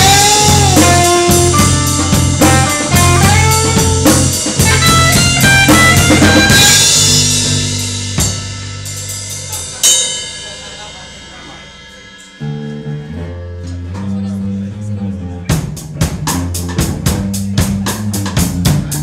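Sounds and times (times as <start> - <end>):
electric guitar bending notes: 0.0 - 9.1, 11.6 - 18.4
bass guitar: 0.0 - 19.0
drums: 0.0 - 19.0
ringing cymbals: 6.5 - 13.1.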